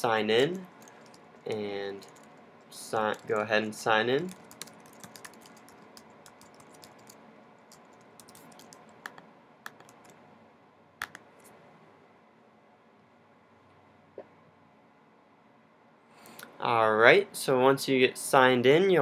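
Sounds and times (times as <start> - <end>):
computer keyboard typing: 0.6 - 2.4, 3.0 - 10.2.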